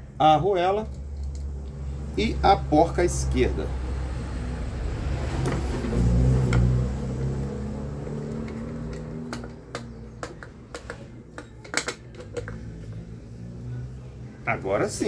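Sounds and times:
small metal clicks and taps: 8.3 - 12.7.

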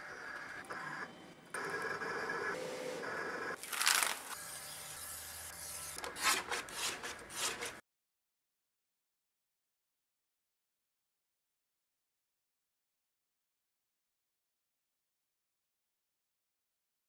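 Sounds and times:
blade scraping decal sheets: 5.5 - 7.8.

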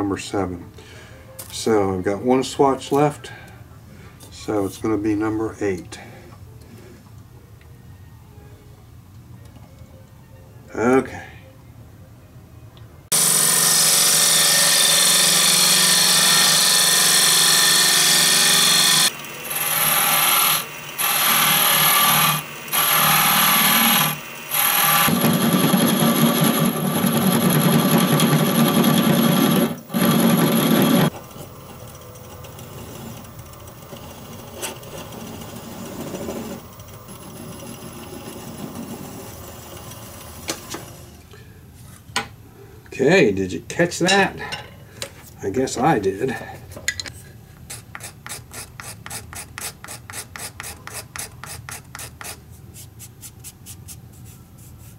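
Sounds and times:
lathe tool cutting wood: 13.1 - 41.0
wood lathe running: 13.1 - 41.1.

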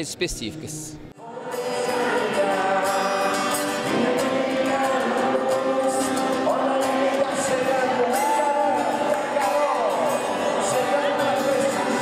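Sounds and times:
acoustic guitar: 0.9 - 12.0.

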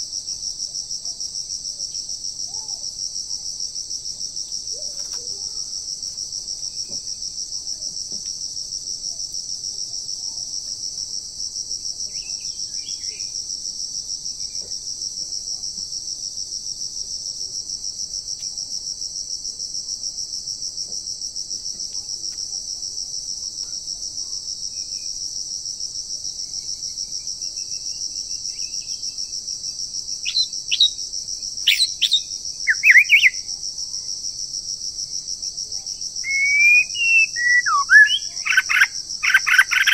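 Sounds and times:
shrill insect chorus: 0.0 - 13.5, 22.0 - 39.9
sharp rising bird calls: 36.3 - 38.8.

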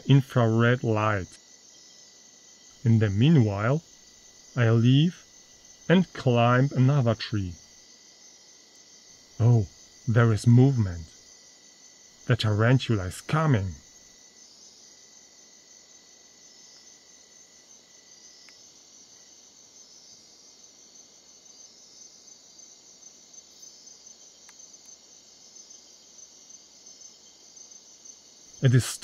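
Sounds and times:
tiny ticks: 24.4 - 25.0.

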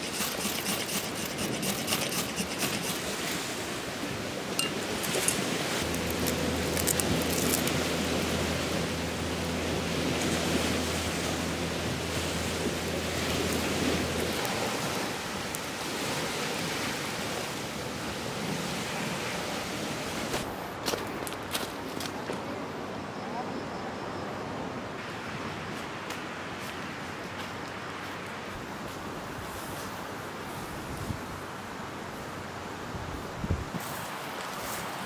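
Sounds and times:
sea waves washing on shore: 0.0 - 20.5
low steady hum: 4.6 - 16.4.

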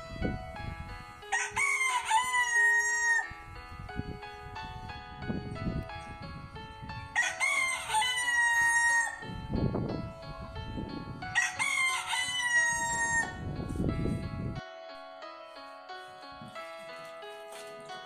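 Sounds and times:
soft background music: 0.0 - 18.0
rooster crowing: 1.3 - 3.3, 7.1 - 9.3, 11.3 - 13.4.

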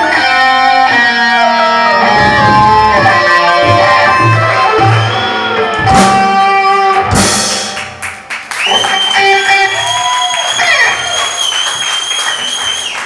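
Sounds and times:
ringing guitar notes bending: 0.0 - 7.3
rock band playing: 0.0 - 11.2.

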